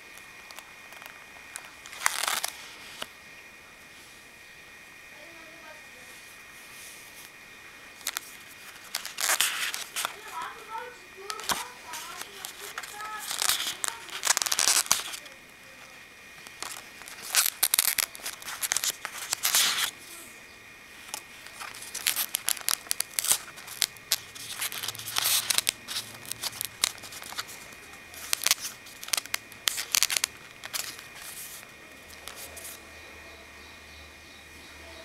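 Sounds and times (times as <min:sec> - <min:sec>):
stiff paper rustling and crinkling: 0:00.0 - 0:03.1, 0:08.0 - 0:20.3, 0:21.0 - 0:32.8.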